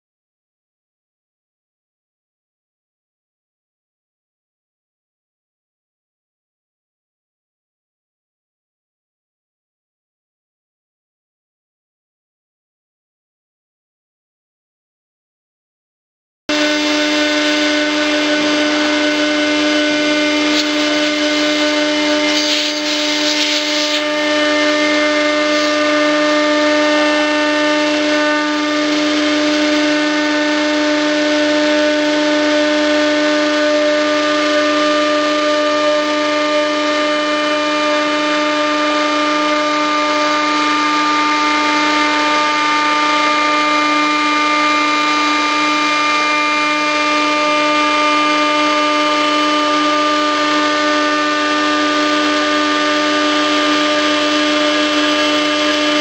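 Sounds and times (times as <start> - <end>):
power tool motor whining: 16.5 - 56.0.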